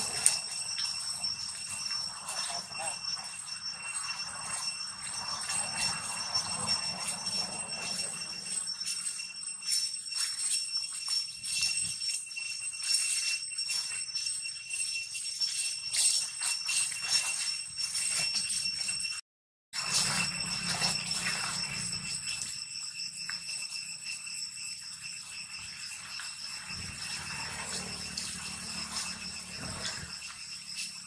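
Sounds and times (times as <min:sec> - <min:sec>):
insects droning: 0:00.0 - 0:19.1, 0:19.8 - 0:31.0
dry leaves crackling: 0:19.8 - 0:22.2, 0:26.6 - 0:31.0.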